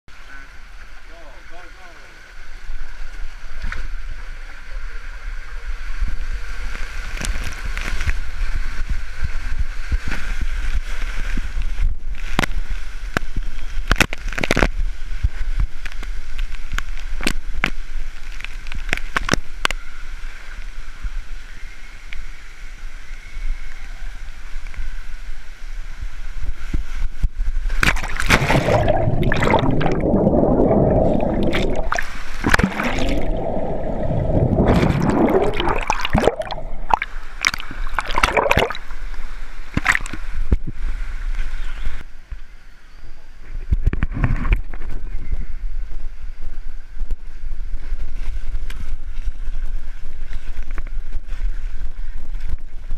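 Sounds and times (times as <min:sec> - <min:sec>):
splash into pool: 0:27.7 - 0:38.9
water rushing down slide: 0:27.8 - 0:39.1
underwater churning and bubbling: 0:27.8 - 0:40.2.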